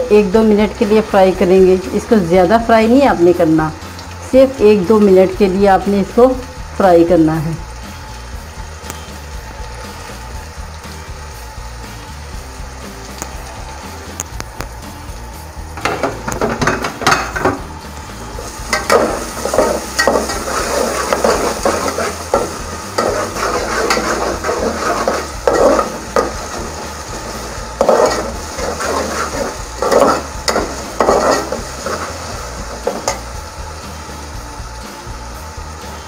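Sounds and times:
onions sizzling in oil: 0.0 - 36.0
metal spatula scraping a pan: 18.6 - 33.3.

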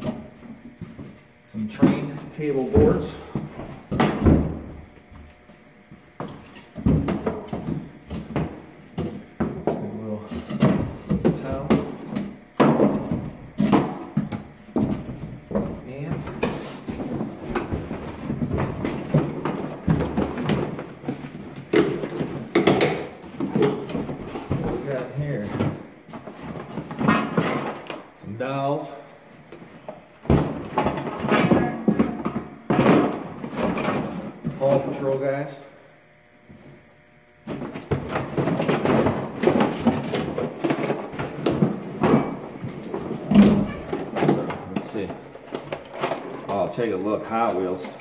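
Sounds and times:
packaging and cardboard rustling: 16.2 - 28.0.

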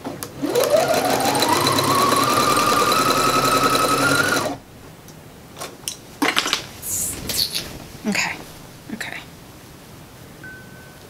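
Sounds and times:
sewing machine stitching: 0.4 - 4.6
fabric rustling: 6.6 - 8.9.

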